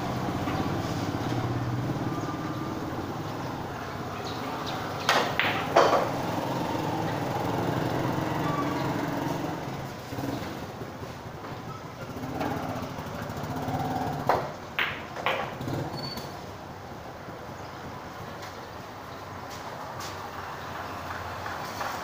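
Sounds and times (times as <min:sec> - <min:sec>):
billiard balls clicking: 0:05.1 - 0:06.2, 0:14.2 - 0:15.6.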